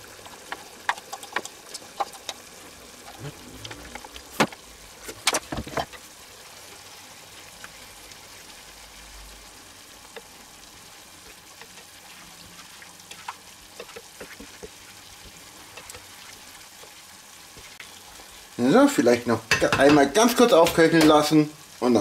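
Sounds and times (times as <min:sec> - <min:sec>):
spatula stirring and scraping: 0:00.0 - 0:04.2, 0:10.1 - 0:18.5
sauce simmering with low sizzle: 0:00.0 - 0:22.0
utensil knocking against pan: 0:19.5 - 0:21.2.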